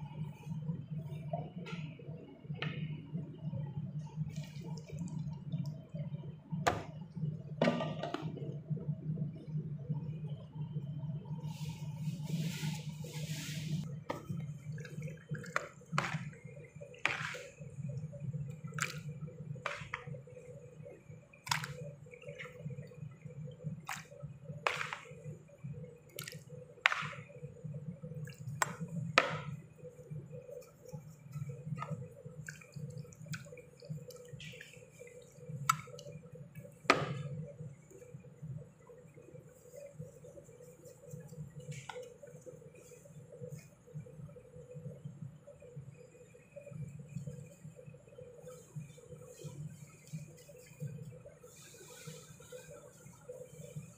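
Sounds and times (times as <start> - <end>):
steady low hum: 0.0 - 53.9
wet squishing: 14.2 - 20.4, 21.4 - 25.4, 26.0 - 29.6, 30.4 - 37.2.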